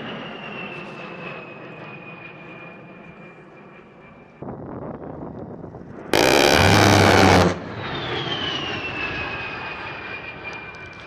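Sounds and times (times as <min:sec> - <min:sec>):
jet engine whine: 0:00.0 - 0:11.0
rotary cannon burst: 0:06.2 - 0:07.7.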